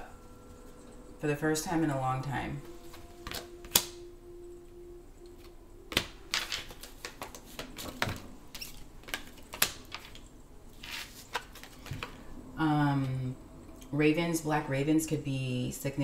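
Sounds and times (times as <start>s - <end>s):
cards clicking and tapping: 2.9s - 3.9s, 5.9s - 12.2s.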